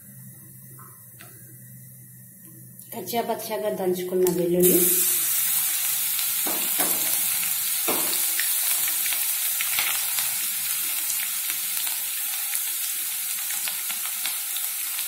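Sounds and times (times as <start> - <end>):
garlic sizzling in hot oil: 4.3 - 15.0.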